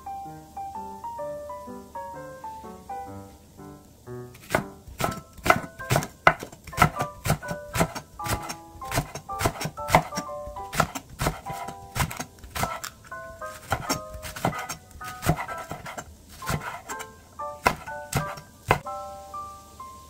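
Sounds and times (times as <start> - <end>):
plinking keyboard music: 0.0 - 20.0
knife knocking on wooden board: 4.4 - 12.9, 13.6 - 17.0, 17.6 - 18.8.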